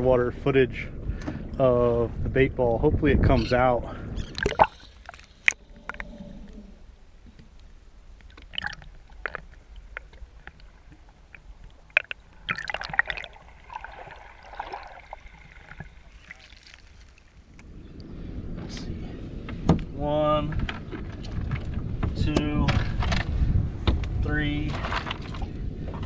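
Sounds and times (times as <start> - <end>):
low wind rumble: 0.0 - 26.0
muffled underwater sloshing: 4.0 - 18.3.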